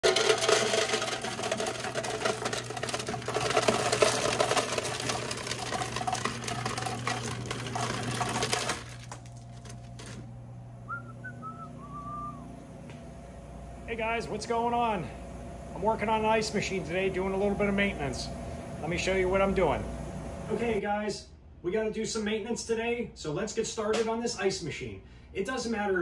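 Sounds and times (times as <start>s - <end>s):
ice cubes clattering down chute: 0.0s - 10.2s
ice dispenser humming: 0.0s - 12.4s.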